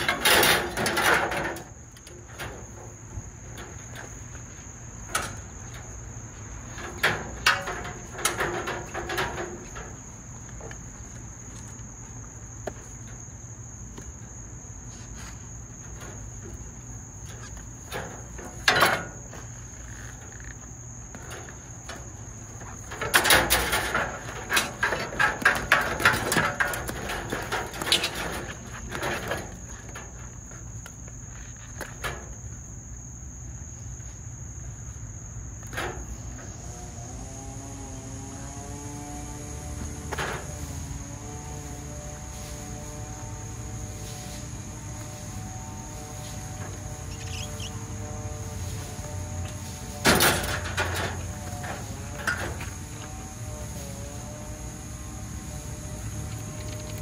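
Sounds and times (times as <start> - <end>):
crickets chirring: 0.0 - 57.0
scraping and clicking: 17.3 - 32.2.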